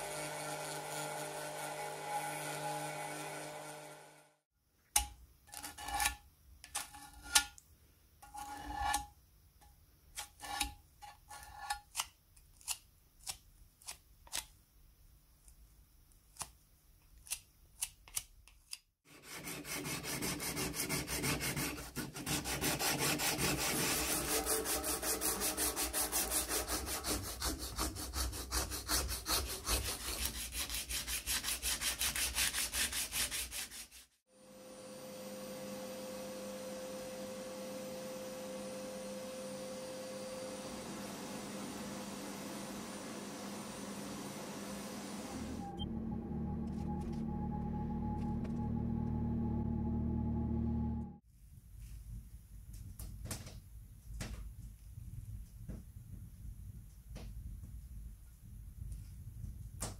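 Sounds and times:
metal sanded with abrasive paper: 19.1s - 34.2s.

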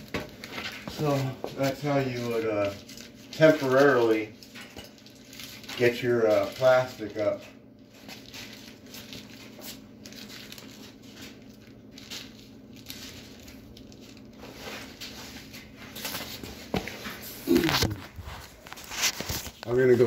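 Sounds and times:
handling and rustling noise: 0.0s - 20.0s
short grunt: 17.4s - 18.1s.

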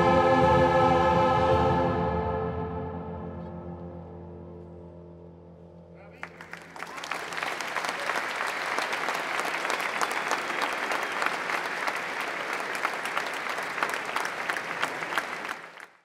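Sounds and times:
audience applauding: 6.1s - 16.0s.

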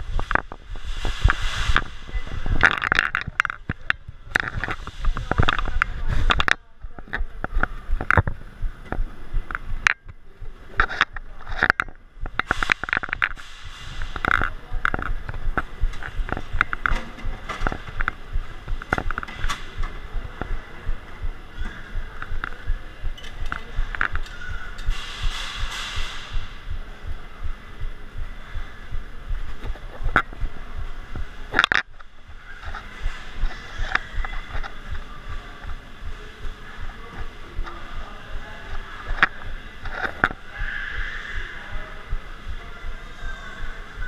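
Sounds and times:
rubbing and knocking on microphone: 0.0s - 10.0s.

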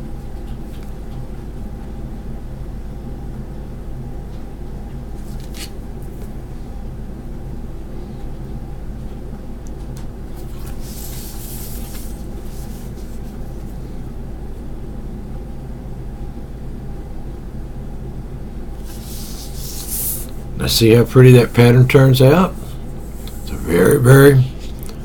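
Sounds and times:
steady low hum: 0.0s - 25.0s
paper sliding over table: 10.4s - 13.7s, 18.8s - 20.4s.

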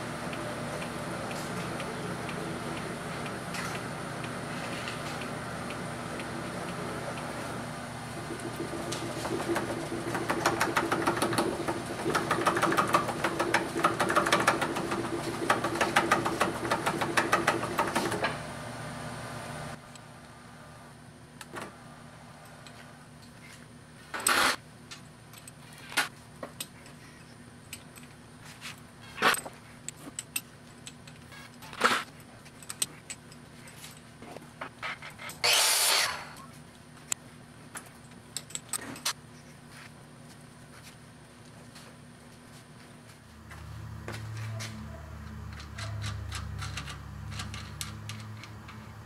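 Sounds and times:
metal lathe humming and clicking: 0.2s - 18.5s.

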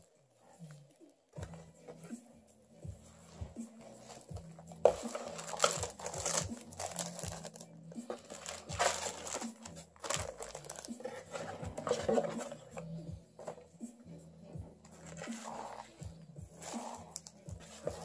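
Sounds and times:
plastic wrapping crinkling: 4.8s - 12.3s.

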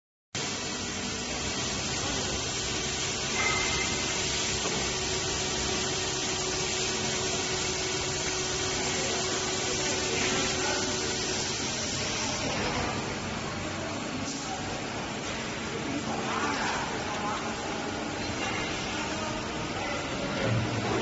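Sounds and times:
machinery hiss: 0.4s - 14.8s
machinery hum: 0.4s - 21.0s.

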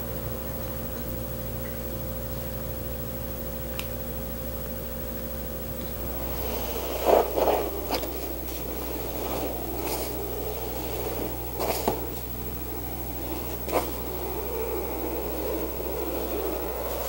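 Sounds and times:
marker scratching on foam: 6.1s - 17.0s.

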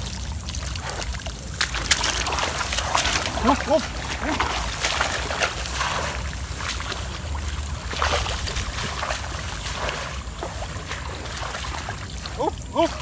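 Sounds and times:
water and mud splashing: 0.0s - 13.0s
grass rustling: 0.8s - 13.0s.

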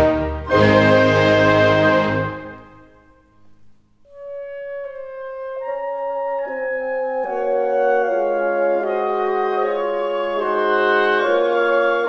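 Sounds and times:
sustained instrumental notes: 0.0s - 3.0s.

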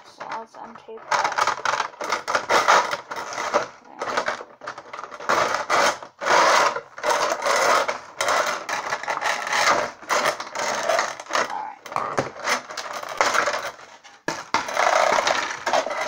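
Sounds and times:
plastic packaging crackling: 0.0s - 16.0s.

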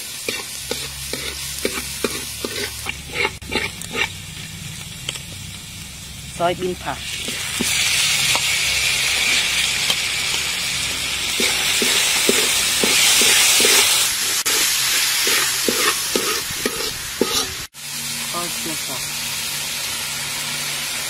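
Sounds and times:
beans sizzling in a wok: 0.0s - 21.0s
metal spatula scraping: 0.2s - 4.2s, 11.3s - 17.7s.

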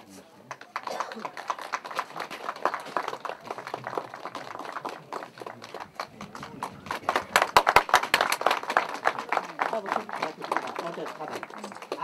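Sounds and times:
faint voices: 0.0s - 12.0s
people clapping: 0.0s - 12.0s.

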